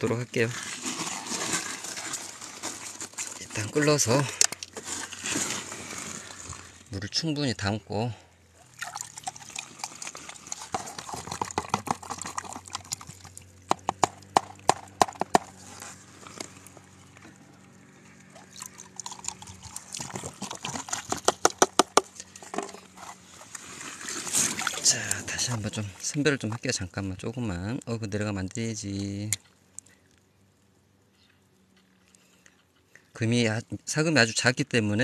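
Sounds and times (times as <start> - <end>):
water sloshing in plastic bottle: 0.0 - 7.0, 8.6 - 26.9
stream flowing: 8.5 - 21.2, 22.9 - 26.4.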